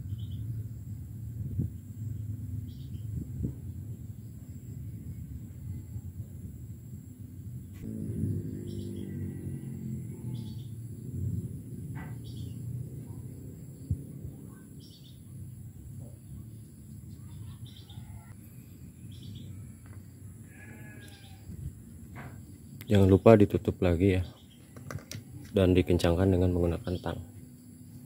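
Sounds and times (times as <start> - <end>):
farm animals bleating: 20.4 - 21.6.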